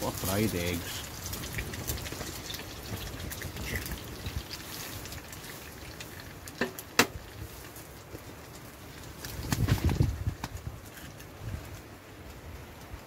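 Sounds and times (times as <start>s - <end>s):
food sizzling in a frying pan: 0.0s - 8.4s.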